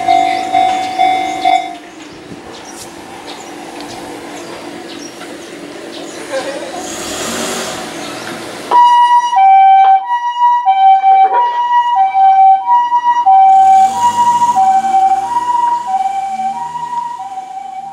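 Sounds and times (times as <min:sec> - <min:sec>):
two-tone ambulance siren: 0:00.0 - 0:01.8, 0:08.7 - 0:17.9
vehicle engine and road noise: 0:00.0 - 0:09.7, 0:13.3 - 0:17.9.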